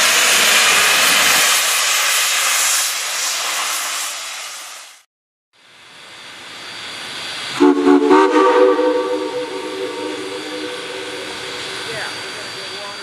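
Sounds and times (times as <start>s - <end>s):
steam hissing: 0.0s - 5.1s, 5.8s - 13.0s
steam locomotive whistle: 7.5s - 13.0s.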